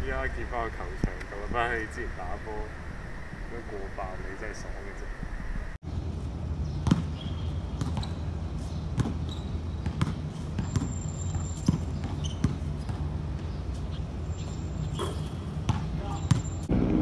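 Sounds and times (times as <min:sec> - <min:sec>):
low background hum: 0:00.0 - 0:06.7
basketball bouncing on hard court: 0:06.8 - 0:07.1, 0:07.7 - 0:08.2, 0:09.0 - 0:13.1, 0:15.0 - 0:16.5.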